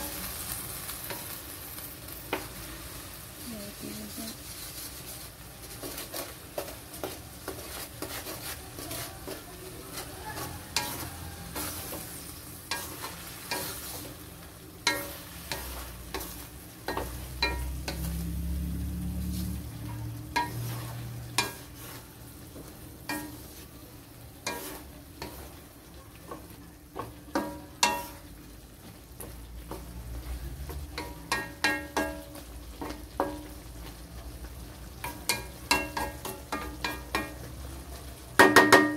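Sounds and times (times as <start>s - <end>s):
light frying sizzle: 0.0s - 38.9s
wooden spatula scraping metal wok: 0.0s - 38.9s.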